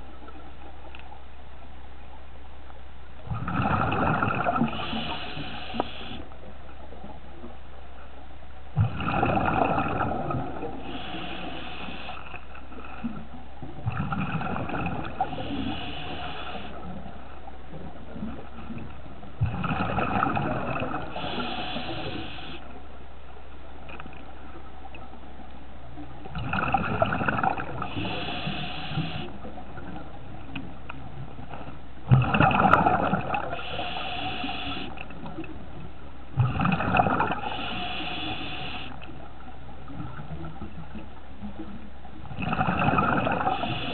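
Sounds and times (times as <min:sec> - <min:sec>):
exhaled air bubbling underwater: 0:03.2 - 0:07.7, 0:08.7 - 0:23.0, 0:23.8 - 0:43.9
regulator breath hissing: 0:04.8 - 0:06.2, 0:10.8 - 0:12.3, 0:15.2 - 0:16.8, 0:21.1 - 0:22.6, 0:27.9 - 0:29.4, 0:33.5 - 0:34.9, 0:37.4 - 0:39.0, 0:43.5 - 0:43.9.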